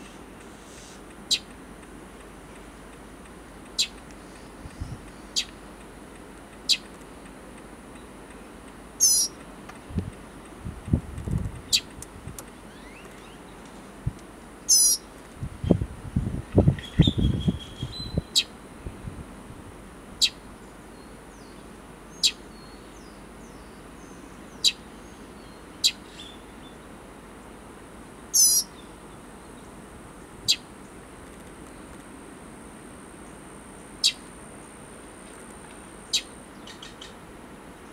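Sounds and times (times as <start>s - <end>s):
bird fledgling calling: 1.3s - 1.5s, 3.8s - 5.6s, 6.7s - 6.9s, 9.0s - 9.4s, 11.7s - 11.9s, 14.7s - 15.1s, 16.8s - 18.5s, 20.2s - 20.4s, 21.4s - 26.5s, 28.3s - 28.9s, 30.5s - 30.7s, 34.0s - 34.3s, 36.0s - 37.2s
high bird trill: 1.3s - 1.5s, 3.8s - 5.6s, 6.7s - 6.9s, 9.0s - 9.4s, 14.7s - 15.1s, 16.8s - 18.6s, 20.2s - 20.4s, 21.0s - 26.7s, 28.3s - 28.9s, 34.0s - 34.3s, 36.0s - 37.2s.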